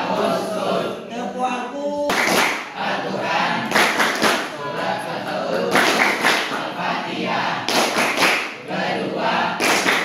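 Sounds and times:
girls chanting in unison: 0:00.0 - 0:01.1, 0:02.1 - 0:10.0
hands clapping in rhythm: 0:02.0 - 0:06.8, 0:07.6 - 0:08.7, 0:09.4 - 0:10.0.

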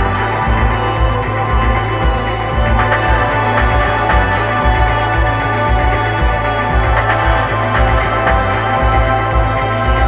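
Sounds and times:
background music with low beat: 0:00.0 - 0:10.0.

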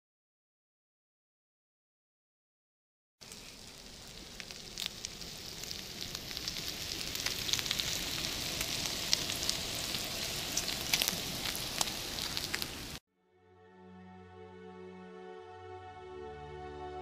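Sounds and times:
bacon sizzling with pops: 0:03.2 - 0:13.0.

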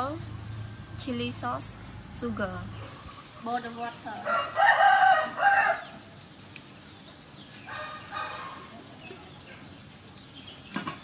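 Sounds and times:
rooster crowing: 0:04.2 - 0:06.1, 0:07.7 - 0:08.6.

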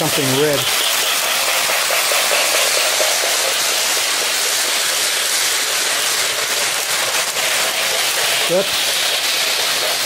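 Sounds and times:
model train rushing on track: 0:00.0 - 0:10.0.

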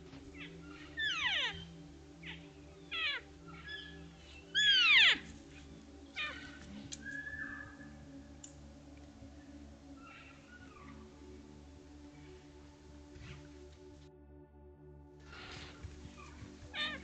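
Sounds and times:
elk whistling calls: 0:00.3 - 0:05.3, 0:06.1 - 0:08.0.

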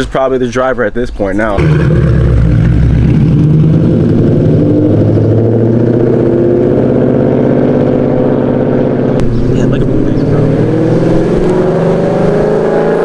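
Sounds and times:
car engine idling loudly: 0:01.6 - 0:12.4.

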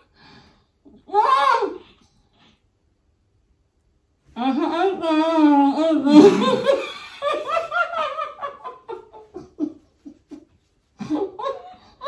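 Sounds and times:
women laughing: 0:04.5 - 0:12.0.

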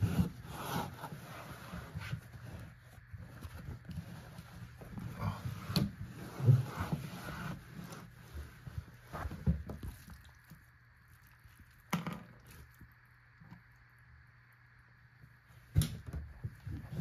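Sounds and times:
knocks and scrapes of handling: 0:00.0 - 0:10.0.

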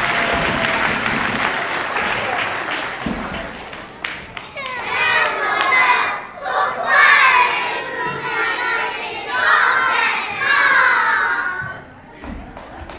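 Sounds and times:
children singing in unison: 0:04.6 - 0:11.8.

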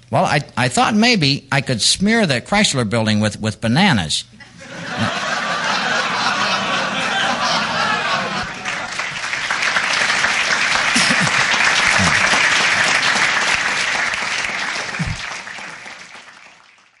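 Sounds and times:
audience applauding: 0:05.0 - 0:17.0.

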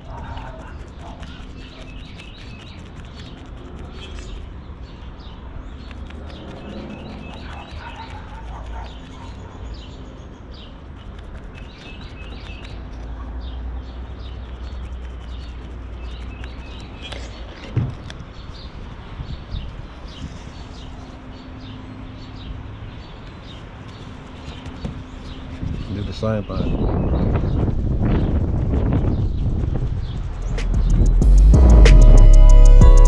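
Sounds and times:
birds chirping: 0:00.0 - 0:28.4
low steady rumble: 0:27.7 - 0:33.0.

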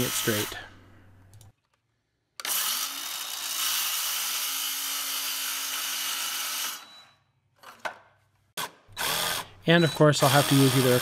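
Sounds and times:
circular saw cutting wood: 0:00.0 - 0:00.7, 0:08.6 - 0:11.0.

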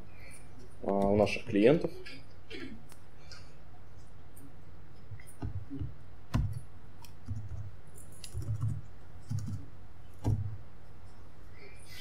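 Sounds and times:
low electrical hum: 0:00.0 - 0:12.0
laptop keys and mouse clicks: 0:05.2 - 0:10.5.

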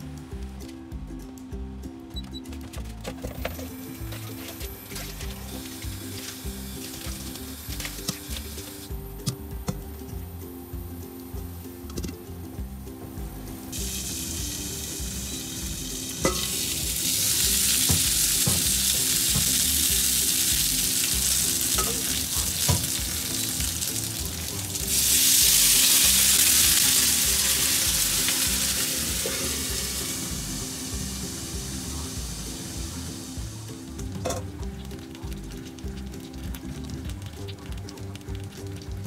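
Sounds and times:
dumplings sizzling in a frying pan: 0:03.6 - 0:09.2, 0:13.7 - 0:39.0.

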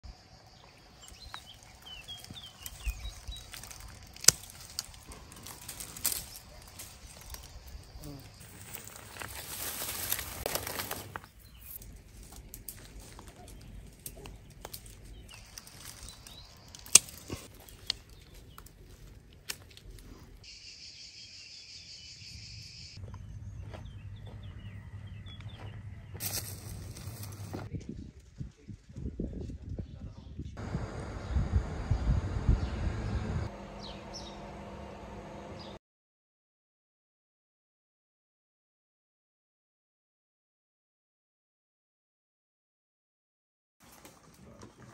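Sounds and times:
bird chirping: 0:00.1 - 0:09.6, 0:11.1 - 0:19.2, 0:20.4 - 0:27.6, 0:31.1 - 0:34.5
high insect buzz: 0:00.3 - 0:11.3
hand rustling through shrub branches: 0:01.0 - 0:20.4, 0:26.2 - 0:27.7
branch snapping: 0:01.1 - 0:07.6, 0:08.4 - 0:20.4, 0:26.2 - 0:27.6
low hum: 0:22.6 - 0:27.7, 0:30.6 - 0:35.8.

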